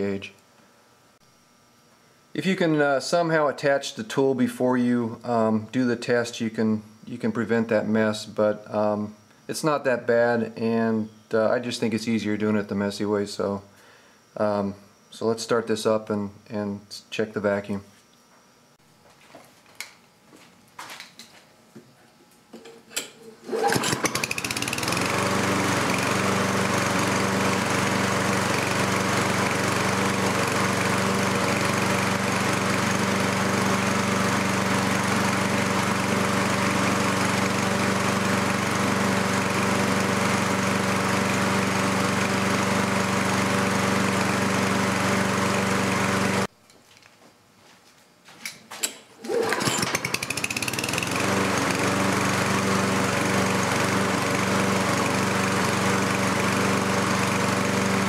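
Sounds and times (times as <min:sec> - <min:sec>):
lawnmower engine running: 0:23.4 - 0:46.5, 0:49.3 - 0:58.0.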